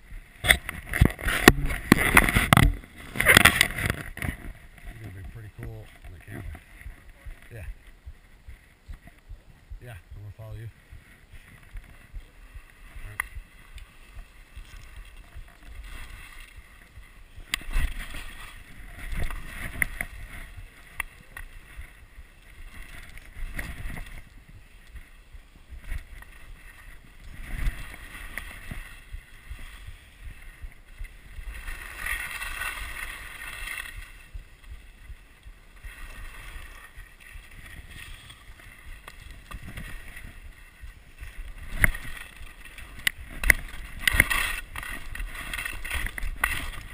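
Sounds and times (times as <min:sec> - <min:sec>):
wind rumble on microphone: 0:00.0 - 0:46.9
skis scraping over snow: 0:10.2 - 0:46.9.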